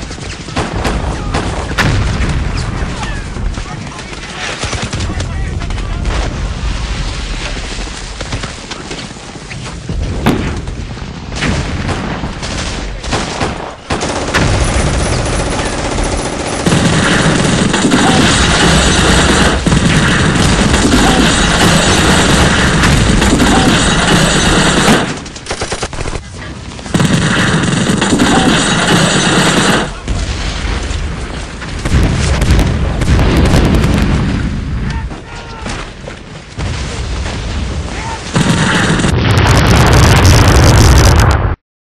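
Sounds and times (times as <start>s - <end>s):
gunshots: 0.0s - 6.6s, 8.1s - 41.6s
sharp crackles: 0.0s - 41.6s
explosion booms: 0.6s - 3.5s, 29.7s - 35.2s, 36.6s - 41.6s.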